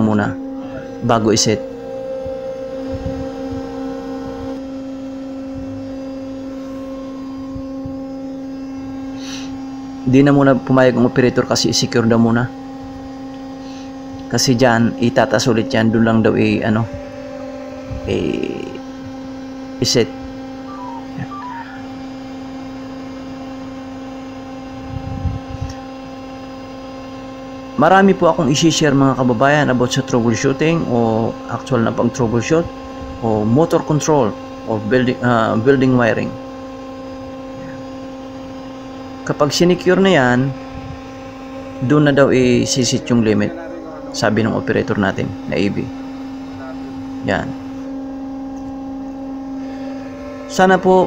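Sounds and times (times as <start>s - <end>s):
crane electrical hum: 0.0s - 51.0s
short faint beeps: 20.7s - 21.9s.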